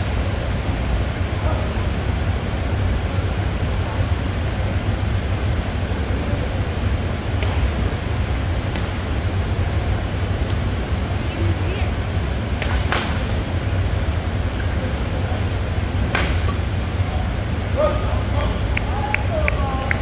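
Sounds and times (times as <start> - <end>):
faint crowd chatter: 1.2 - 8.2, 9.3 - 12.5, 13.2 - 20.0
racket hitting shuttlecock: 7.3 - 8.0, 8.7 - 9.3, 12.6 - 13.4, 16.0 - 16.9.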